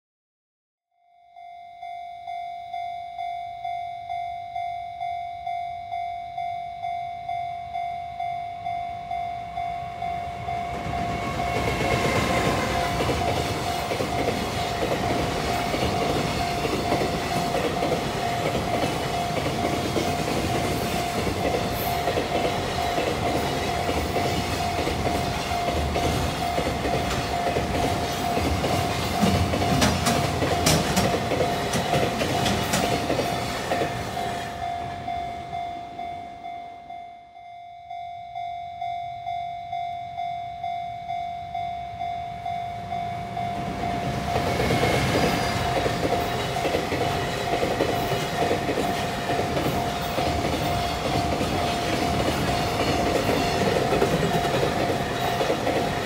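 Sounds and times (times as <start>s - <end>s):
level-crossing bell ringing: 1.1s - 56.0s
freight train passing: 6.8s - 56.0s
wheels clacking over rail joints: 10.7s - 34.4s, 43.6s - 56.0s.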